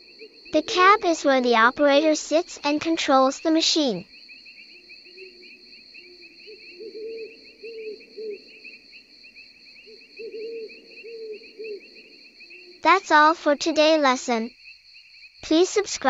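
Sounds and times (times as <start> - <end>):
low repeated animal call: 0.0 - 2.0, 4.0 - 12.9
insects trilling: 0.0 - 16.0.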